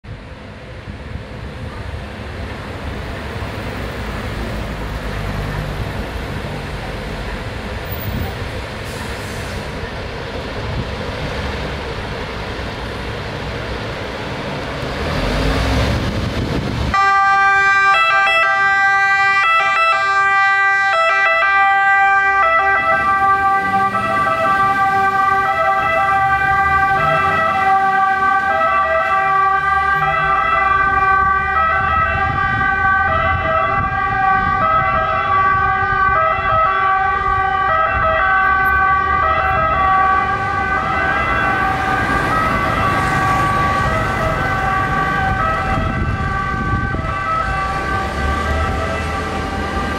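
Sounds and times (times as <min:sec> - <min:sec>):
two-tone siren: 0:16.9 - 0:49.9.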